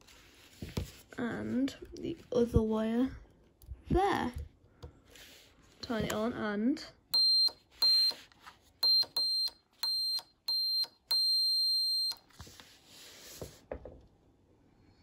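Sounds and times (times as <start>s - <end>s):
high-pitched buzzer beeps: 7.2s - 8.2s, 8.8s - 12.2s.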